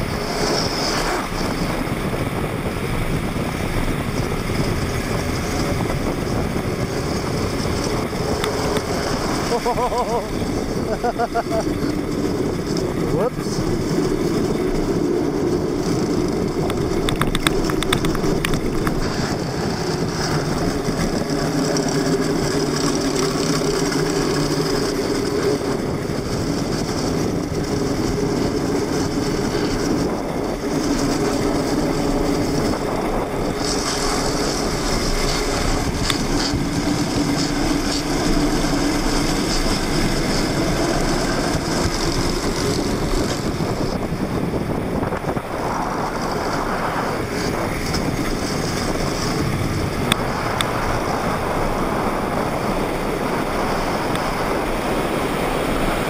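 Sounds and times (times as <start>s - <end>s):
plastic wheels rolling on asphalt: 0.0s - 56.0s
wavering hum: 0.0s - 56.0s.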